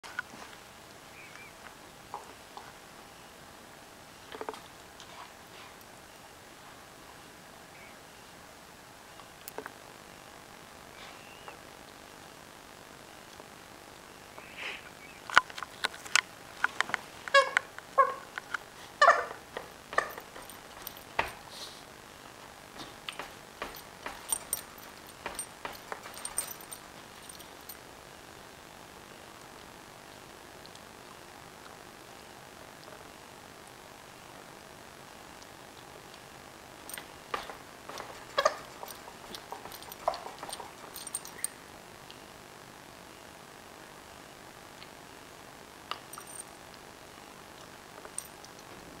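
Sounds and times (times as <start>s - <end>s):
puppy squealing: 17.3s - 18.3s, 19.0s - 20.3s, 38.3s - 38.8s
dog chewing rubber ball toy: 37.0s - 41.0s.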